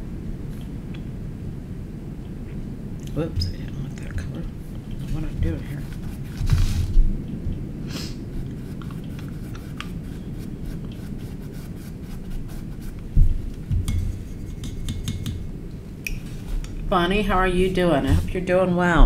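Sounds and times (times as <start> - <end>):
steady low hum: 0.0 - 19.0
paintbrush scrubbing canvas: 5.0 - 7.0, 8.3 - 14.9.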